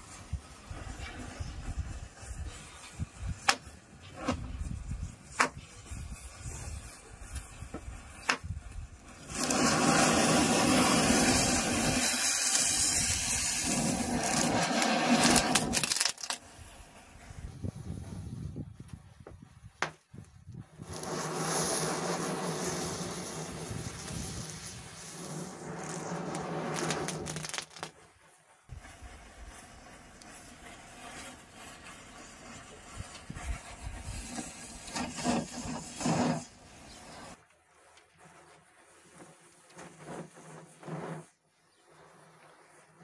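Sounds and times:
burning matches fizzing and crackling: 0.0 - 17.8, 20.0 - 37.4
firework spraying sparks hissing: 0.0 - 18.3, 20.6 - 28.0, 28.7 - 37.4
match heads popping: 9.3 - 16.5, 20.8 - 28.0.

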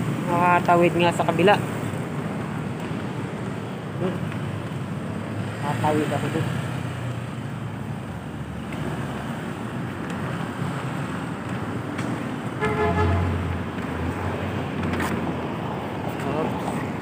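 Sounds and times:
city street traffic: 0.0 - 17.0
vehicle horn beep: 12.6 - 13.4.

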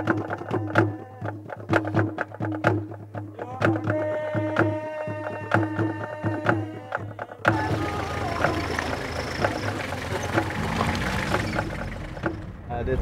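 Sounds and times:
drum beat: 0.0 - 12.5
held melodic line: 7.5 - 12.5.

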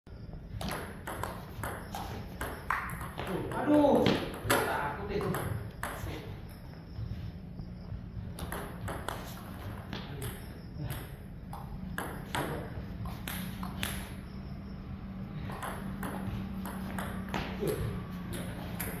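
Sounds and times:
steady low hum: 0.1 - 19.0.

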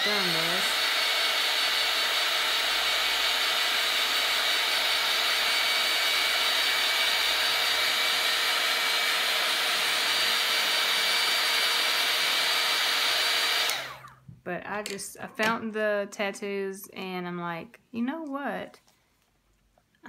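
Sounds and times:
hair dryer running: 0.0 - 14.2.

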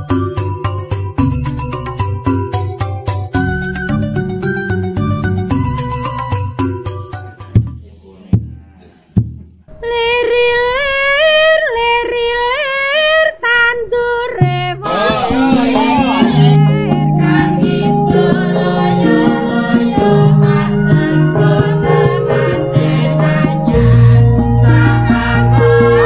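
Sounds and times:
woman singing: 9.7 - 25.9
gamelan ensemble playing: 14.9 - 17.0.

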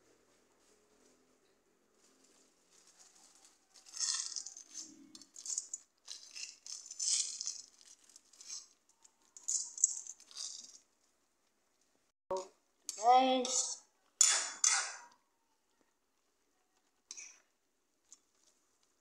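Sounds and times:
dry noodles rattling in a pan: 2.3 - 10.9.

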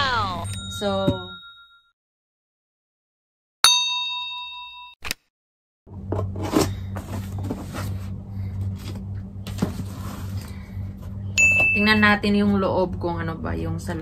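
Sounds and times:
bell-like chime: 0.3 - 1.9, 3.7 - 5.0, 11.4 - 12.0
steady low hum: 5.9 - 14.0
hands handling cardboard box: 6.1 - 8.1, 8.8 - 11.2.

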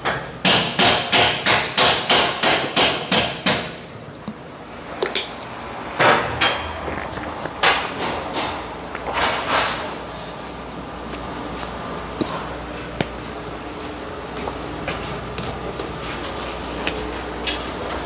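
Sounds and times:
hammer striking metal: 0.0 - 3.8.

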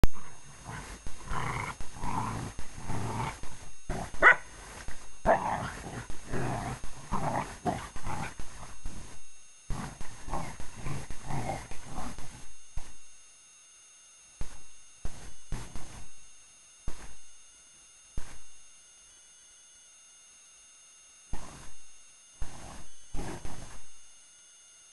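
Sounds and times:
dogs play-growling: 0.1 - 12.4, 22.4 - 23.8.

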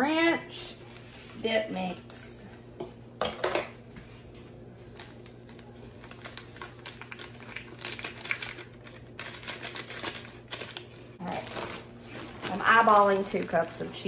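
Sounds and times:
packet crinkling and rustling: 4.8 - 14.0.

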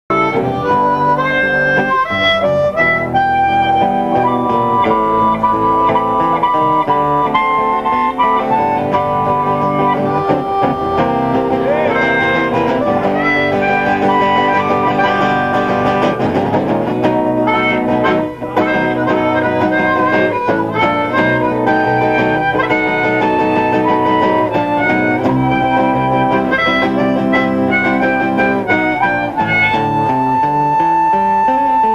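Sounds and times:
harmonica melody: 0.0 - 31.9
acoustic guitars strumming: 0.1 - 31.9.

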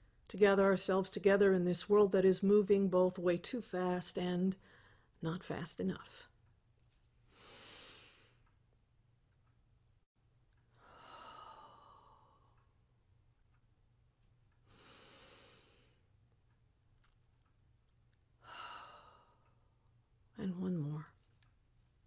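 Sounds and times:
woman breathing deeply: 4.6 - 5.2, 7.2 - 8.5, 10.7 - 12.7, 14.6 - 16.1, 18.4 - 19.8.

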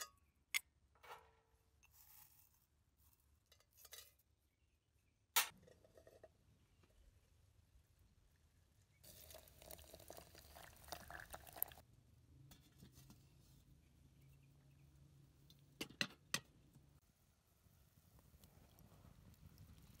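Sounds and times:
water pouring from kettle: 9.0 - 11.8.

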